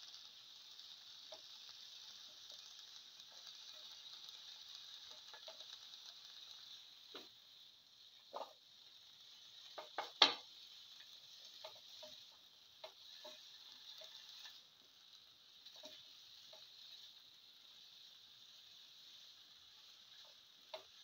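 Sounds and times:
faint frying hiss: 0.0 - 21.0
spatula scraping frying pan: 2.2 - 6.5, 8.2 - 8.6, 9.3 - 14.7, 15.5 - 21.0.

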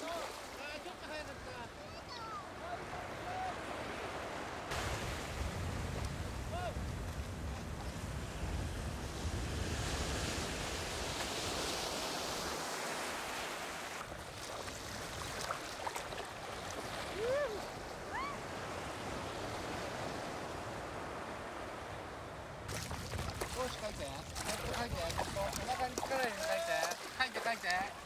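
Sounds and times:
sea surf breaking: 0.0 - 28.0
wind buffeting microphone: 4.7 - 12.0, 16.8 - 26.4.

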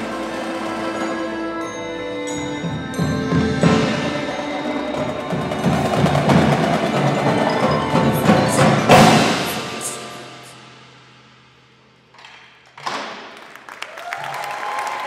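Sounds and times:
marimbas and mallet keyboards: 0.0 - 10.5
marching drums: 2.6 - 11.3.

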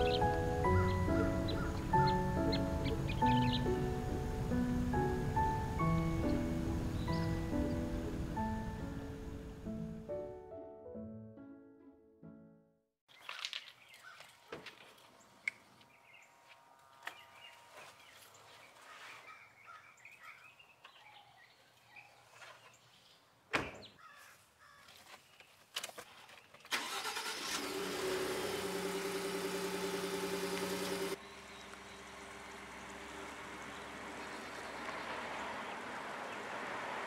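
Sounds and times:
birds chirping: 0.0 - 4.7, 5.3 - 8.8, 13.1 - 14.5, 15.1 - 16.4, 17.0 - 25.6, 30.6 - 36.6
truck engine starting and idling: 26.7 - 37.0.

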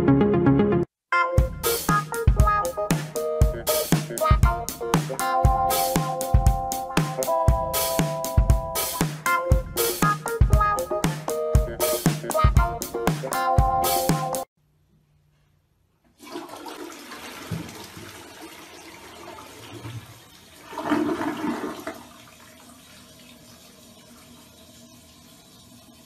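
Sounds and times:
music: 0.0 - 14.5
toilet flushing: 16.1 - 26.0.

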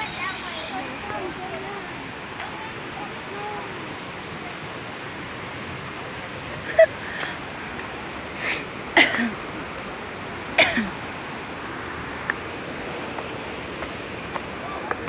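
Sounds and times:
steady rushing background noise: 0.0 - 15.0
breathy vocal sounds: 6.7 - 7.4.

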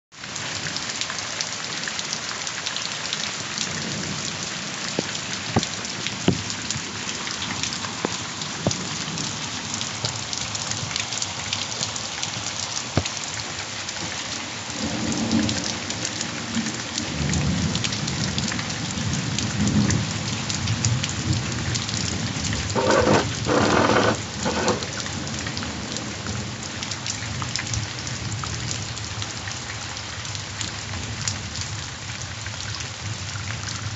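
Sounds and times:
heavy rain hissing: 2.9 - 18.3, 19.0 - 26.5.

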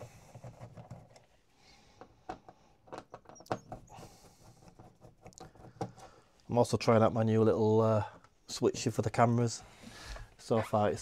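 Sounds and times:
small clicks and taps of screws: 2.0 - 6.1.

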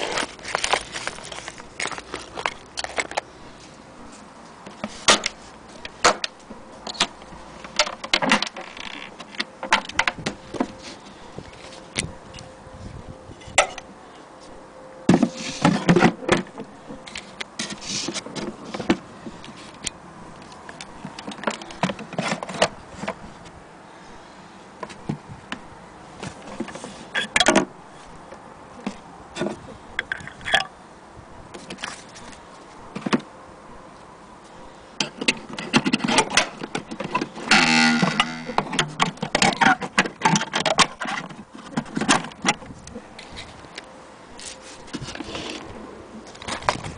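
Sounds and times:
carrying case rattling and scraping: 0.0 - 3.2, 20.9 - 23.5, 35.0 - 43.6.

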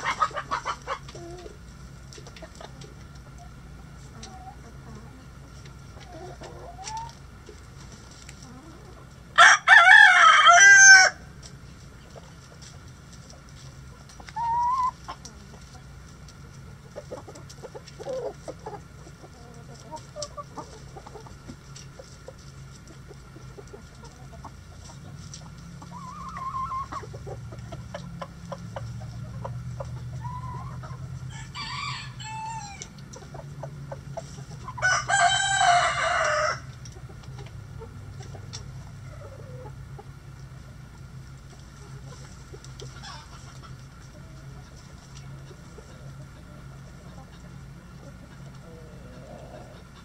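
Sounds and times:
chickens clucking: 0.0 - 50.0
rooster crowing: 9.4 - 11.2, 31.3 - 32.9, 34.8 - 36.7.

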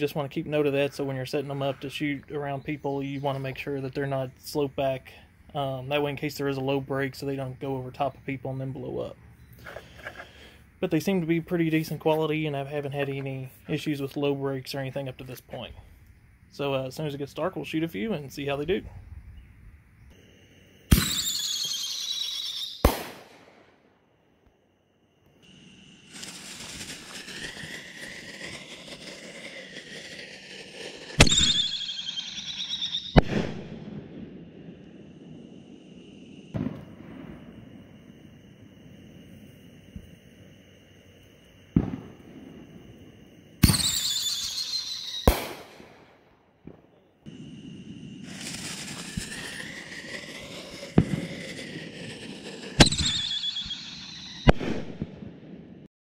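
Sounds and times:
firework fuse hissing: 9.5 - 12.2, 19.9 - 23.6, 25.4 - 33.8, 34.7 - 46.0, 47.3 - 55.1
high falling firework whistle: 18.6 - 23.7, 25.2 - 46.2, 47.0 - 55.1
firework shell bursting: 20.2 - 23.7, 25.4 - 33.8, 35.8 - 46.3, 47.3 - 55.1
firework launch bang: 20.9 - 23.8, 25.4 - 39.1, 41.5 - 55.8.

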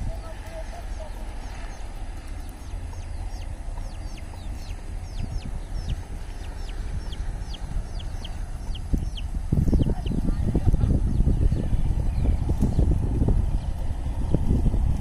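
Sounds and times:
low microphone rumble: 0.0 - 15.0
bird chirping: 0.2 - 10.5.

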